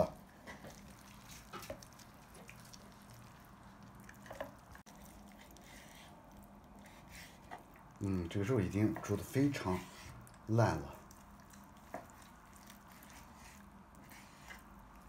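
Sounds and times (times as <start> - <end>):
low steady hum: 0.0 - 15.0
soft wet clicks of meat: 0.6 - 8.0, 10.2 - 13.8.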